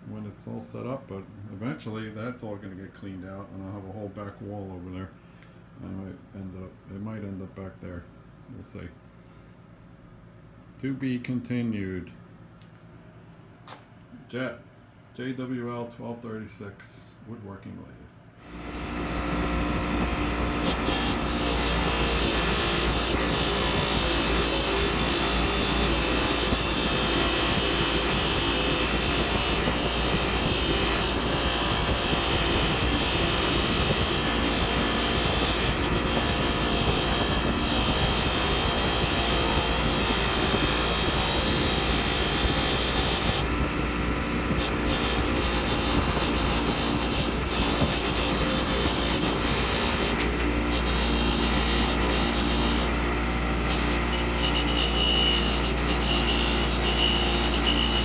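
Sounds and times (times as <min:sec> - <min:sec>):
bench grinder grinding steel rod: 0:18.4 - 0:58.0.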